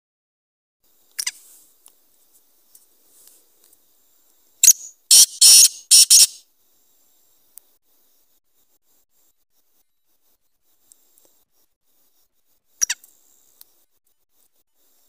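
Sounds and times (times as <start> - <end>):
bird calling scratchy high notes: 4.6 - 6.4.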